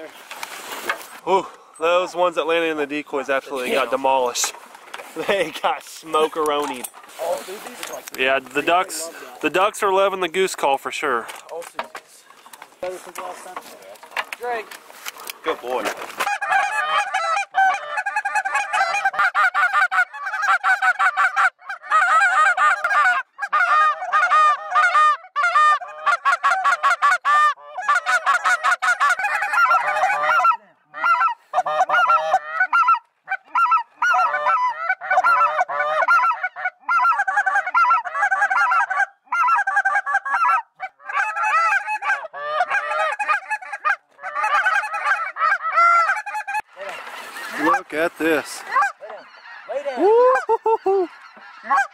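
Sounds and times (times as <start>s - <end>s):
geese honking: 1.8s - 10.8s, 12.2s - 51.9s.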